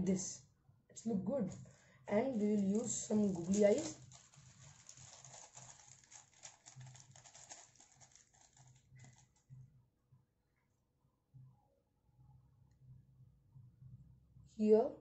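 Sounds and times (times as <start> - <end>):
paper rustling and tapping: 2.3 - 9.6.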